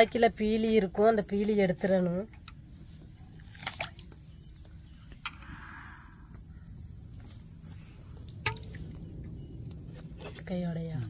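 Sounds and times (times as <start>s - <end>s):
wet handling in water: 3.2s - 4.4s.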